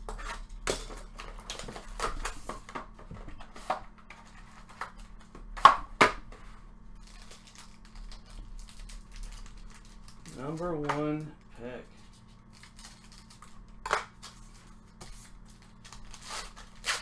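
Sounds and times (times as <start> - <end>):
foil crinkling: 6.9 - 11.3, 11.9 - 17.0.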